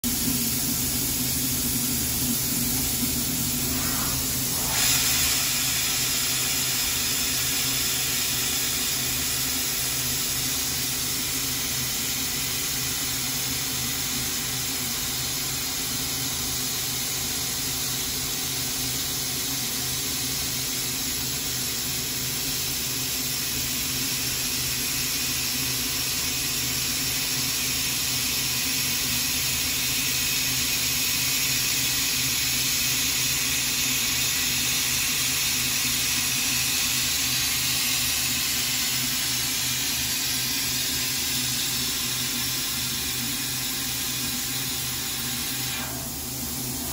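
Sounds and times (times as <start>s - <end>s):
milling machine spindle hiss: 0.1s - 13.0s, 30.4s - 46.9s.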